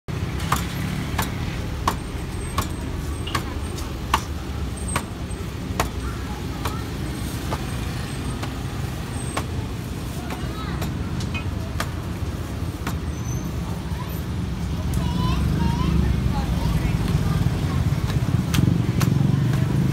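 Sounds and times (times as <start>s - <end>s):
street traffic rumble: 0.1s - 19.9s
dough slapping on a steel counter: 10.2s - 12.2s, 18.0s - 19.9s.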